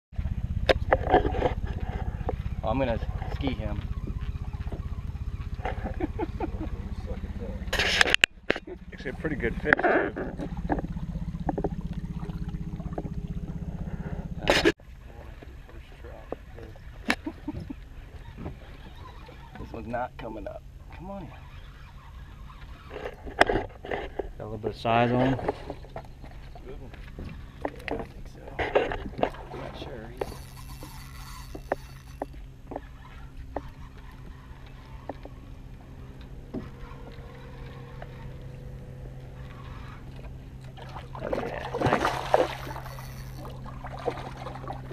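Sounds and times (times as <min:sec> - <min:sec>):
boat engine low hum: 0:00.1 - 0:44.9
low pulsing rumble: 0:00.2 - 0:44.9
faint thin whine: 0:17.6 - 0:44.9
fish splashing at the surface: 0:40.7 - 0:44.9.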